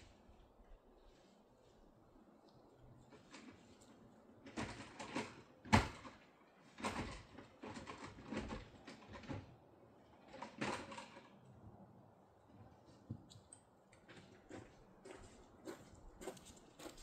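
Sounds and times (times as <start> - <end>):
scraping and rustling handling noise: 1.0 - 11.4.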